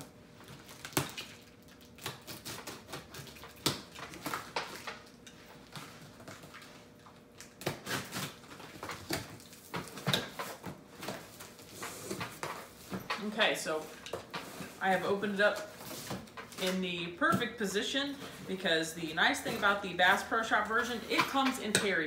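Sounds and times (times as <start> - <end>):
box cutter slitting tape and cardboard: 2.0 - 4.6, 7.6 - 10.6.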